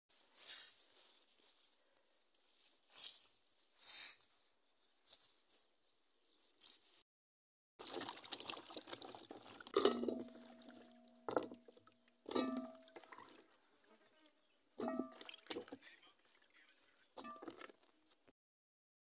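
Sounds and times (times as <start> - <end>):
hands rustling in soil: 0.1 - 7.0
water splashing in a basin: 7.8 - 14.1, 14.8 - 16.5
potato knocking metal basin: 12.3 - 12.9.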